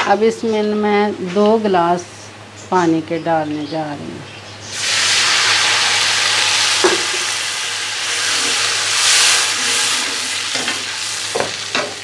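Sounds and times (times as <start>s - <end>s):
water sizzling in hot oil: 4.7s - 12.0s.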